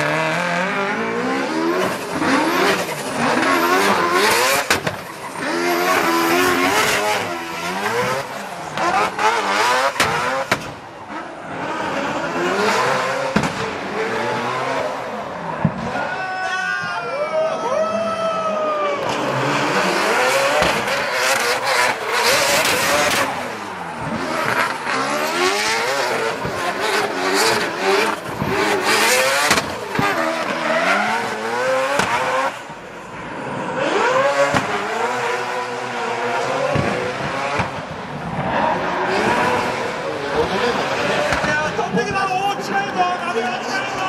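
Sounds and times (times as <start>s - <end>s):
car engine revving: 0.0s - 16.0s, 19.0s - 44.0s.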